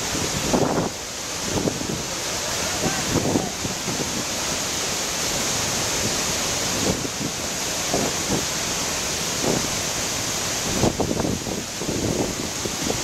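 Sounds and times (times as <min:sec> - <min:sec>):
wind buffeting microphone: 0:00.0 - 0:04.4, 0:10.6 - 0:13.0
waterfall rushing: 0:00.0 - 0:13.0.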